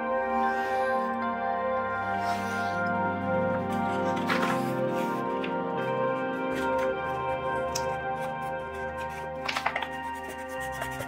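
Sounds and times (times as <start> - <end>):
background music with held tones: 0.0 - 11.0
paper crackling as folded: 3.8 - 11.0.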